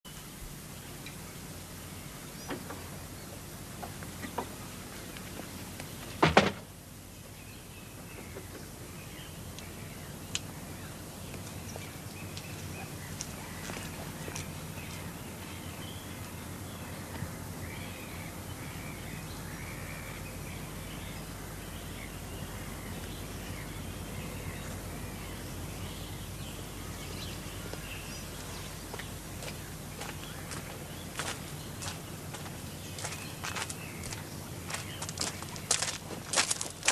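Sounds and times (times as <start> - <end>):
birds calling: 0.1 - 36.9
steady outdoor hiss: 0.1 - 36.9
wooden door shutting: 6.2 - 6.7.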